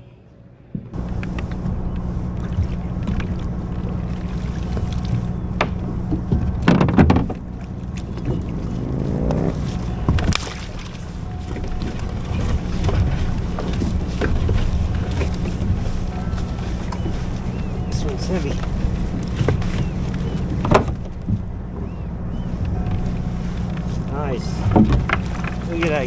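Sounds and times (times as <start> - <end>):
short rising whine: 7.3 - 17.9.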